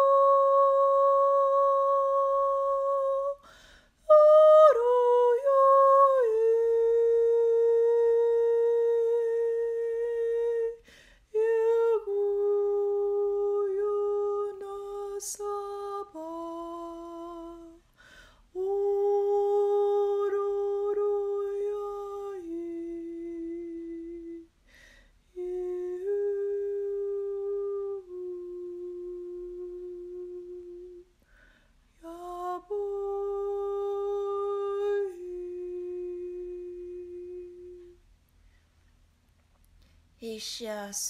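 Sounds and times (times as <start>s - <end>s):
woman humming: 0.0s - 3.5s, 4.1s - 10.8s, 25.4s - 31.1s, 32.0s - 38.0s.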